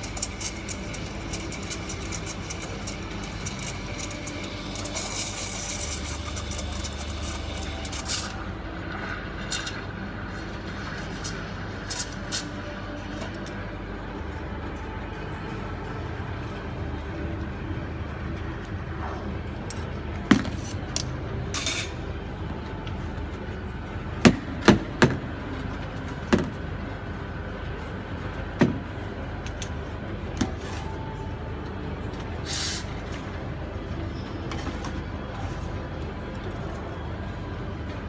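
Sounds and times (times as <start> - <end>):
espresso machine hum: 0.0 - 9.4
brief hisses: 32.5 - 32.9.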